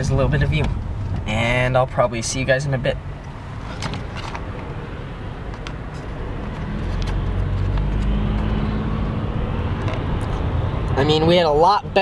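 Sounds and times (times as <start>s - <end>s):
tyre and road noise: 0.0s - 12.0s.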